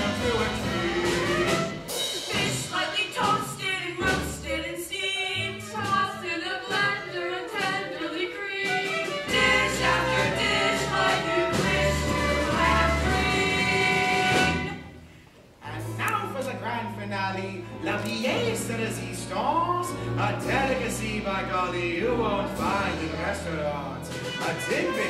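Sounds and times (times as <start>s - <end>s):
group singing with instruments: 0.0s - 3.3s, 5.8s - 15.0s.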